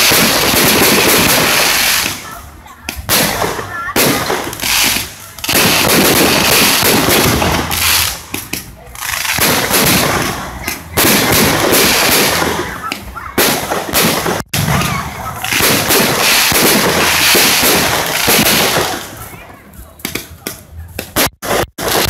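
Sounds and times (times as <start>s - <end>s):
crackling firework sparks: 0.0s - 22.0s
fireworks shell bursts: 2.9s - 19.2s.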